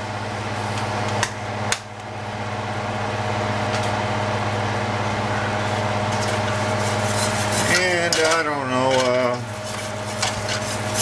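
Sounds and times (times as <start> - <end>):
stove hum: 0.0 - 11.0.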